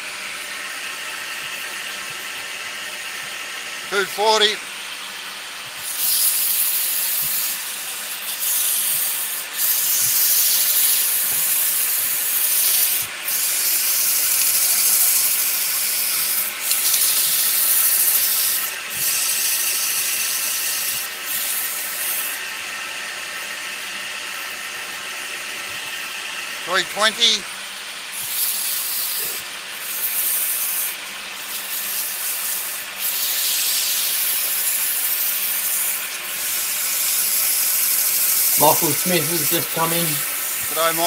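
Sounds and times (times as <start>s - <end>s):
lathe motor hum: 0.0s - 41.0s
sanding wood on lathe: 5.8s - 22.4s, 28.1s - 41.0s.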